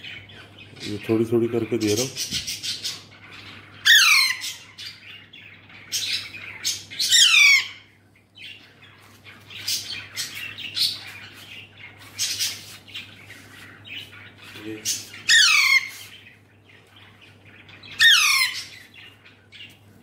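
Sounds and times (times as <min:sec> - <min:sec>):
parakeet chick squawking: 0:00.1 - 0:07.9, 0:08.5 - 0:16.4, 0:17.0 - 0:19.2.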